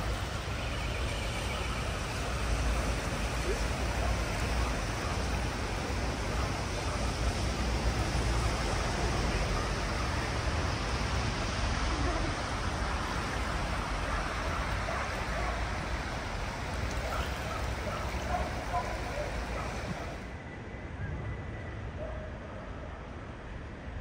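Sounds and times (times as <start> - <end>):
rushing river: 0.0 - 20.4.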